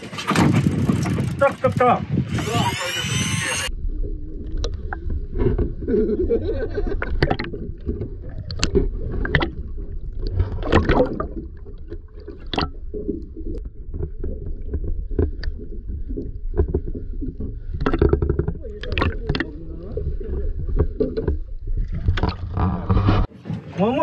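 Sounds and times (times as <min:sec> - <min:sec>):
water gurgling: 0:03.7 - 0:23.2
muffled underwater water rumble: 0:03.7 - 0:23.3
water splashes: 0:06.9 - 0:23.3.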